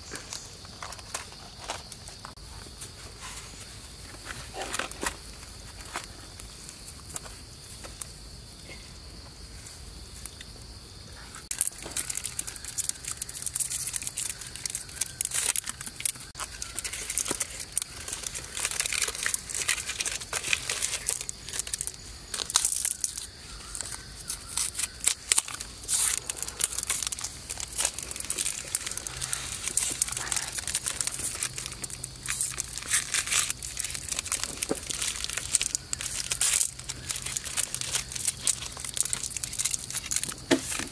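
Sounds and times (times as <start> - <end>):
wrappers crinkling and tearing: 11.5 - 40.9.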